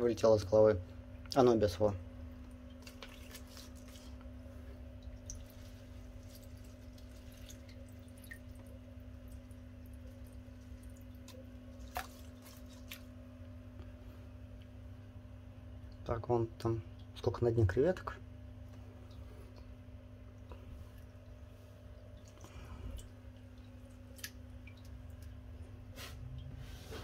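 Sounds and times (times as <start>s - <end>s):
steady low hum: 0.0s - 27.0s
water dripping and splashing: 2.2s - 13.5s, 16.8s - 17.4s, 18.6s - 26.6s.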